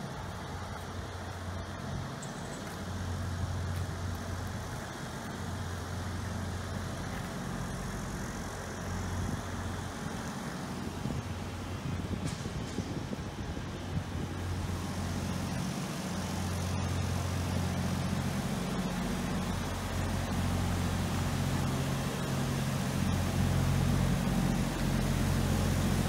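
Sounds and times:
low engine hum: 0.0s - 26.0s
traffic noise: 0.0s - 26.0s.

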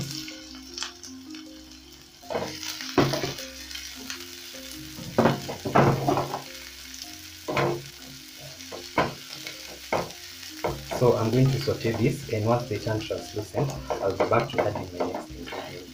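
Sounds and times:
onions sizzling in hot oil: 0.0s - 15.9s
spatula scraping and tapping pan: 2.3s - 3.4s, 8.6s - 11.2s, 13.6s - 15.9s.

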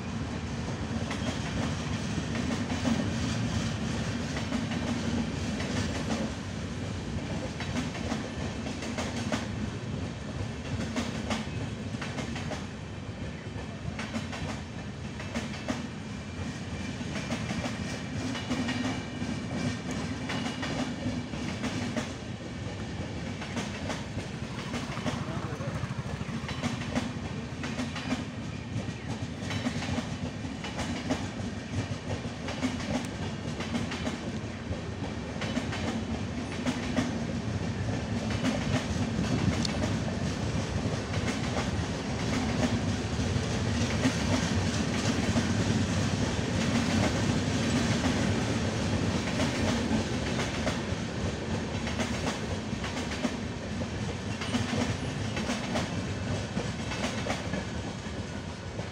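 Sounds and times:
train wheels rumbling on rail: 0.0s - 58.9s
wheels clacking over rail joints: 17.1s - 22.2s, 23.0s - 34.4s.

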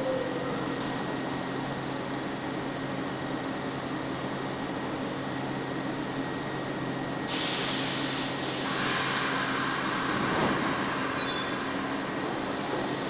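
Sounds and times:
train rushing along track: 7.2s - 13.0s
wheel squeals: 10.4s - 11.6s.

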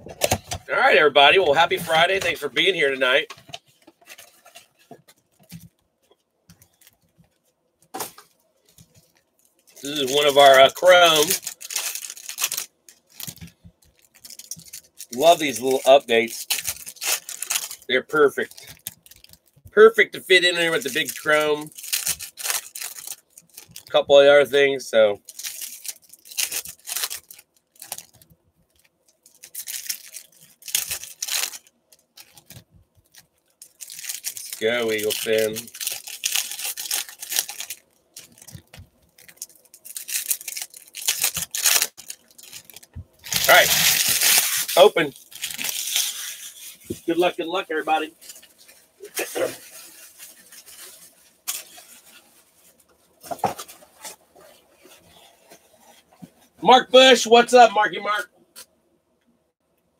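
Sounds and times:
rustles and knocks of handling: 3.2s - 10.2s, 37.5s - 39.5s, 41.2s - 44.8s, 48.1s - 56.6s
foil wrappers tearing and crinkling: 9.8s - 19.6s, 20.3s - 24.0s, 25.2s - 47.3s, 48.1s - 52.4s.

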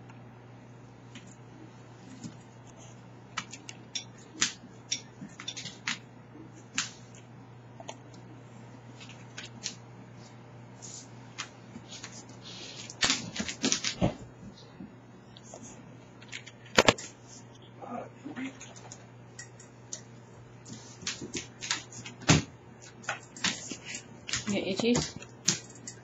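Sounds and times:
steady low hum: 0.0s - 26.0s
dog claws clicking on hard floor: 21.0s - 26.0s.

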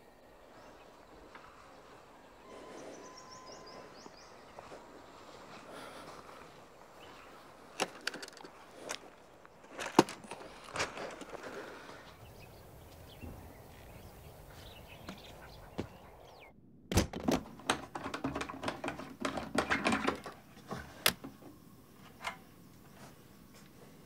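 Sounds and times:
bird chirps: 0.0s - 7.6s, 12.0s - 16.6s
faint outdoor ambience: 0.0s - 24.0s
plastic clicks and rattles: 7.8s - 11.4s, 16.9s - 21.4s.

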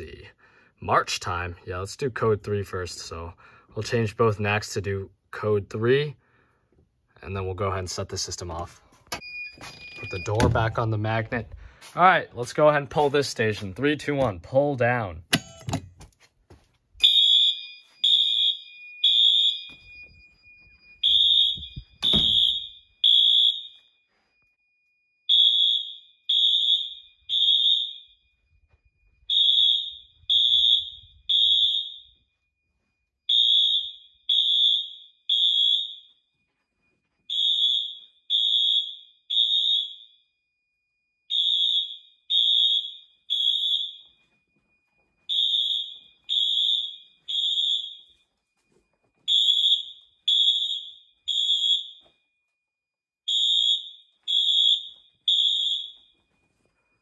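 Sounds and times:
fire alarm horns blasting: 7.8s - 11.6s, 17.0s - 52.6s, 53.2s - 57.0s
faint steady high tone: 8.3s - 11.5s, 56.0s - 57.0s.

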